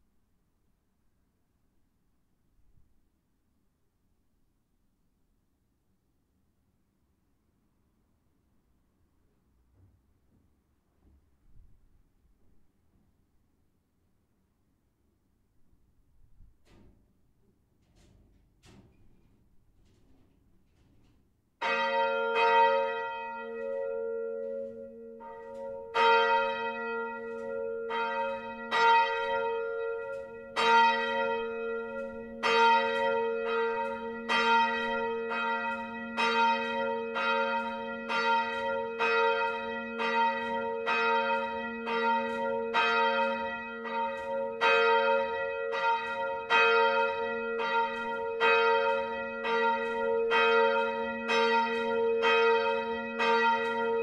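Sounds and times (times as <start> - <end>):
church bell ringing: 21.6 - 54.0.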